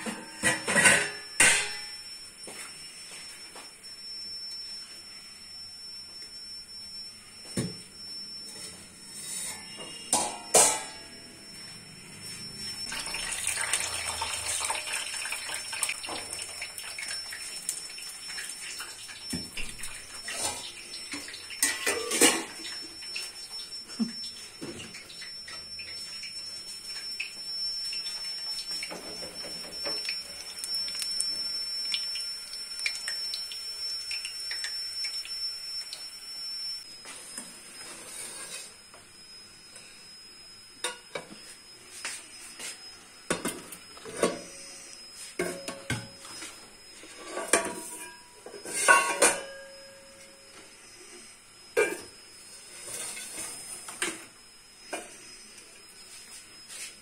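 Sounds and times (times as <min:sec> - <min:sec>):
steel pots knocking and clinking: 0:00.0 - 0:01.9, 0:10.1 - 0:11.0, 0:18.3 - 0:23.6, 0:47.3 - 0:49.6
water running in sink: 0:12.8 - 0:36.4.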